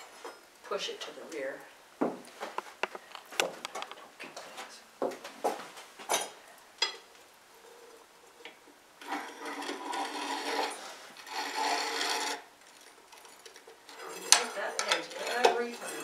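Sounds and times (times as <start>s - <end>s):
metal trivet scraping across brick: 8.4s - 16.0s.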